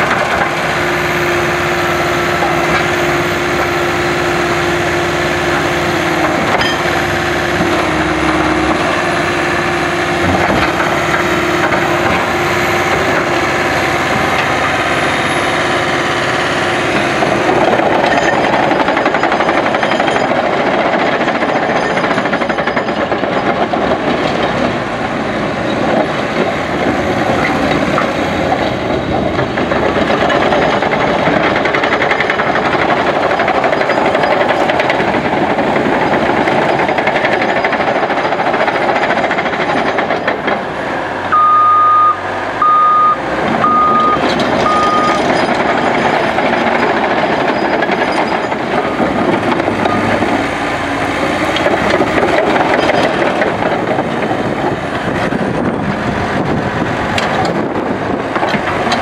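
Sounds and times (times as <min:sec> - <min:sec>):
bulldozer diesel engine and tracks: 0:00.0 - 0:59.0
reverse alarm beeping: 0:41.3 - 0:45.3.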